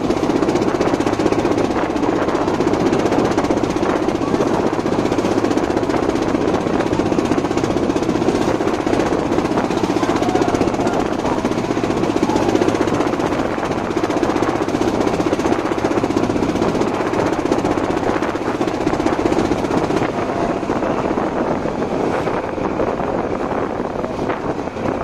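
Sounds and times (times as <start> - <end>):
boat engine running: 0.0 - 25.0
water rushing along hull: 0.0 - 25.0.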